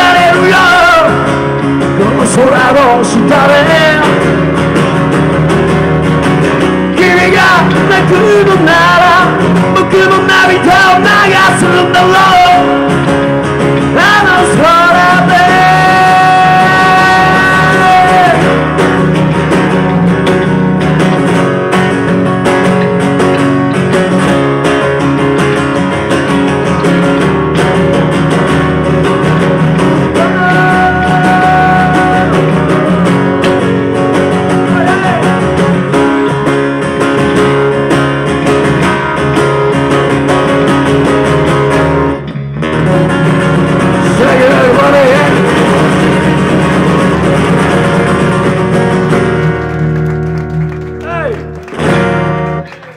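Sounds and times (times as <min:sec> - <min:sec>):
acoustic guitar strumming: 0:00.0 - 0:52.9
electric bass: 0:00.0 - 0:52.9.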